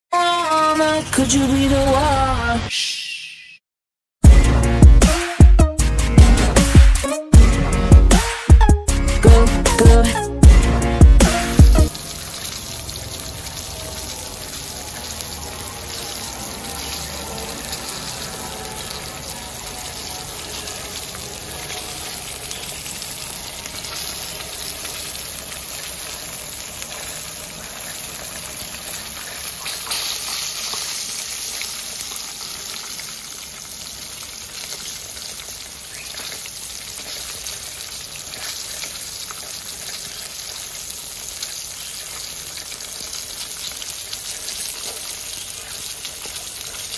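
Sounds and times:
fish sizzling in hot oil: 11.3s - 46.9s.

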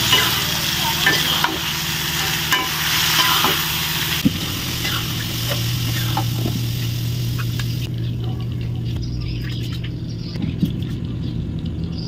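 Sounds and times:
metal spatula scraping pan: 0.0s - 3.9s
food sizzling in a wok: 0.0s - 7.9s
steady low hum: 0.0s - 12.0s.

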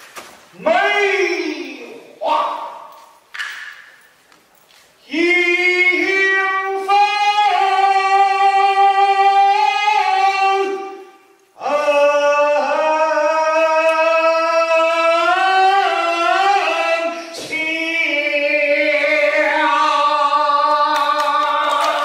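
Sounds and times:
opera singing with long high notes: 5.0s - 22.0s.

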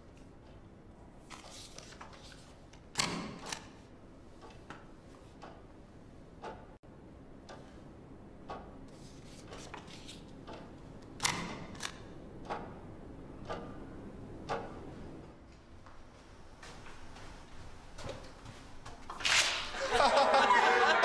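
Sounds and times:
wall clock ticking: 4.4s - 5.8s, 6.4s - 8.9s, 10.4s - 15.2s.

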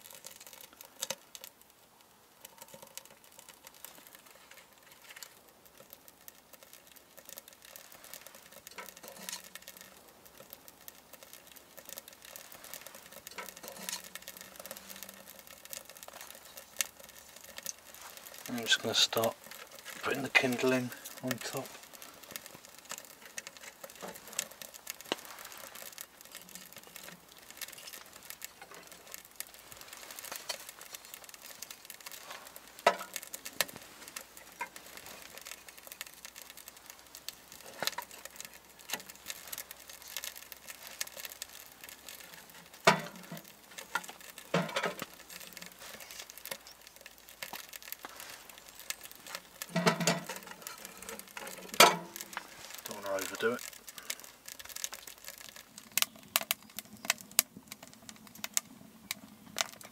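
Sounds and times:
fire crackling in metal stove: 0.0s - 59.9s
kindling sticks knocking on grate: 32.8s - 33.7s, 42.6s - 45.2s, 49.4s - 53.0s.

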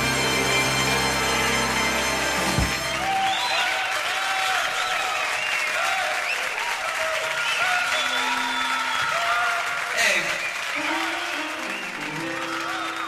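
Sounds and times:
audience applauding and cheering: 0.0s - 13.0s
shouts and whoops: 3.0s - 10.0s.

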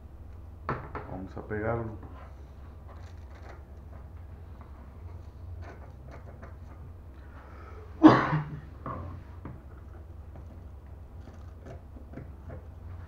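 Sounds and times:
low steady hum: 0.0s - 13.0s
person clearing throat: 8.0s - 8.7s.

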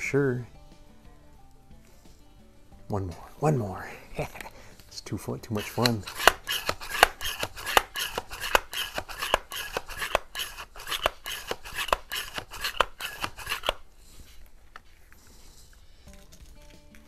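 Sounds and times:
air rifle pump clicking: 5.5s - 13.8s.

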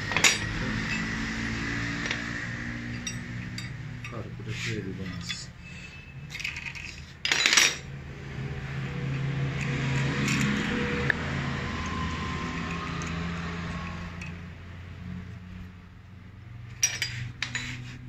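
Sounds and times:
metal tools clinking and rattling: 0.0s - 7.9s, 9.5s - 10.8s, 12.6s - 14.5s, 16.7s - 18.0s.

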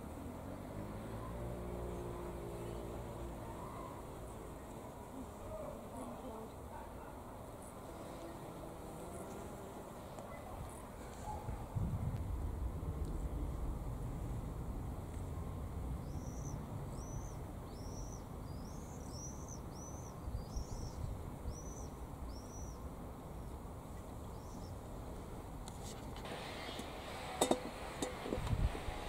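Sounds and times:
low steady rumble: 11.2s - 19.1s
songbird chirping: 16.0s - 24.8s.

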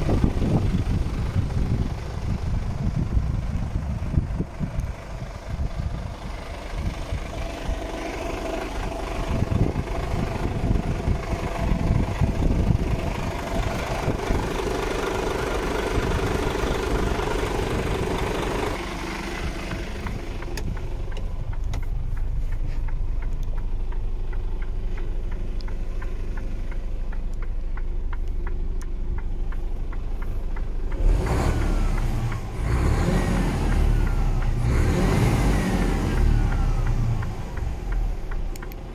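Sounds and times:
diesel truck engine idling: 0.0s - 38.9s
engine revving: 6.4s - 22.2s, 30.6s - 38.9s.

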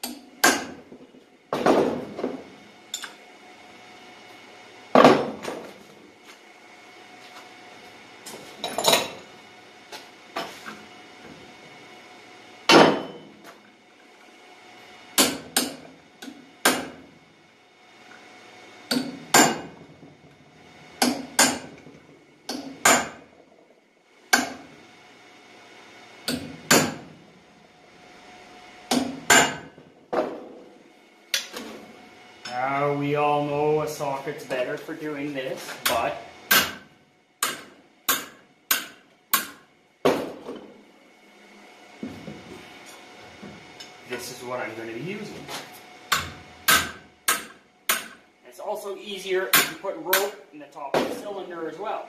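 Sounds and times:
hammer striking steel punch: 0.0s - 0.8s, 12.7s - 13.3s, 15.2s - 17.0s, 18.9s - 19.8s, 21.0s - 21.8s, 22.5s - 23.2s, 24.3s - 24.7s, 26.2s - 27.1s, 28.9s - 29.8s, 35.8s - 40.3s, 46.1s - 48.2s, 49.5s - 50.4s.

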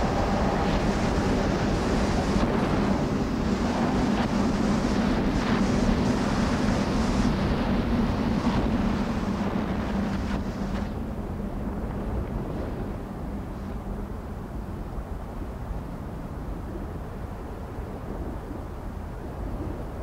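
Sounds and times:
low held hum: 0.0s - 20.0s
rushing wind: 0.0s - 20.0s.

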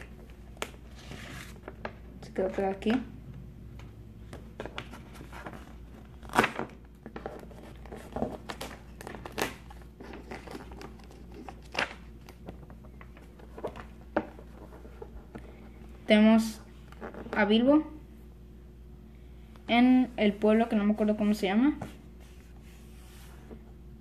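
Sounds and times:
cardboard sleeve rustling and scraping: 12.6s - 16.0s, 21.0s - 23.7s.

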